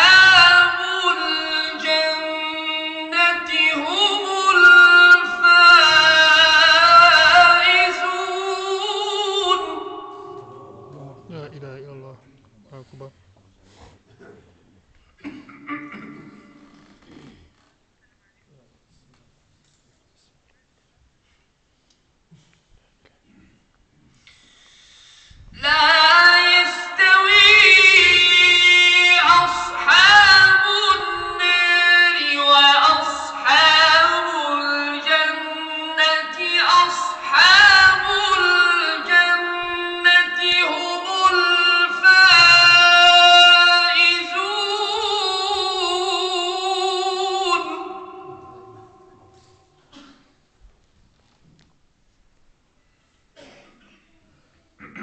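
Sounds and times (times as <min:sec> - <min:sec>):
person chanting melodic recitation: 0:00.0 - 0:11.8, 0:25.6 - 0:49.8.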